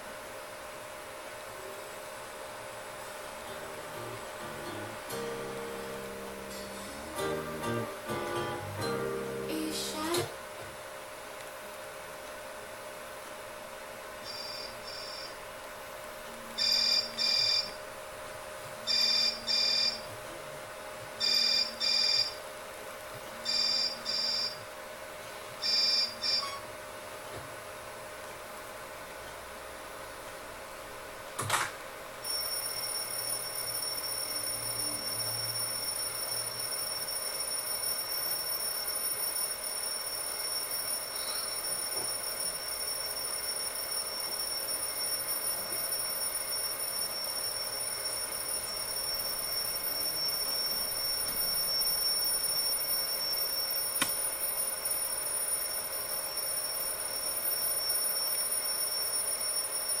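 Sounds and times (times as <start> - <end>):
alarm clock ringing: 16.6 - 17.8, 18.9 - 20.1, 21.2 - 22.4, 23.5 - 24.6, 25.6 - 26.4, 32.2 - 60.0.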